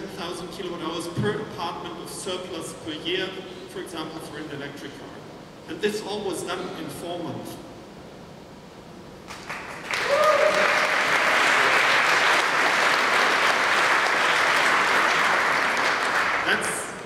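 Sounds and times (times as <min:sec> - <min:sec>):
audience applauding: 0:09.3 - 0:16.9.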